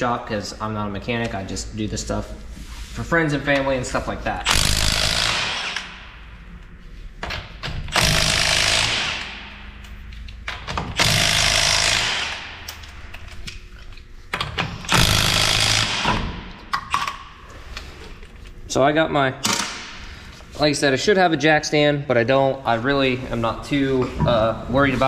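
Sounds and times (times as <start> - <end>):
impact wrench rattling: 4.4 - 6.1, 7.2 - 13.5, 14.3 - 17.2.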